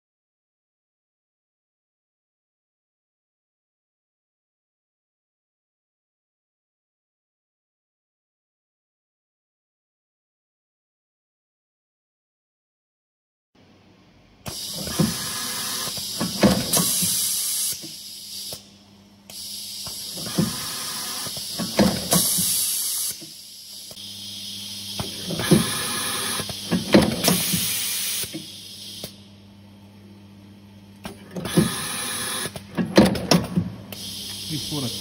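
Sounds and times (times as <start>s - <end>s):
loud air hiss: 14.5s - 18.7s, 19.3s - 29.2s, 34.0s - 35.0s.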